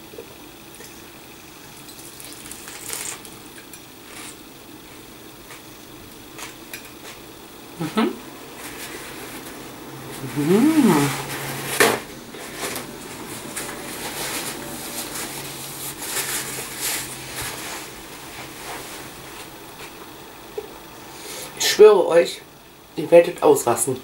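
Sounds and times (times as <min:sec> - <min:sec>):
low steady hum: 0:00.0 - 0:24.0
woman humming mmm: 0:07.8 - 0:08.3, 0:10.1 - 0:11.6
paper napkin rustling: 0:10.1 - 0:20.0.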